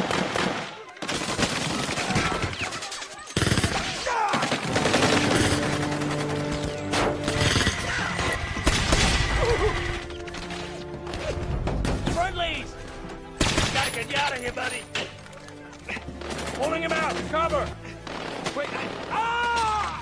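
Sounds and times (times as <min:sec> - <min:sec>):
automatic gunfire bursts: 0:00.0 - 0:06.6
film music score: 0:04.0 - 0:20.0.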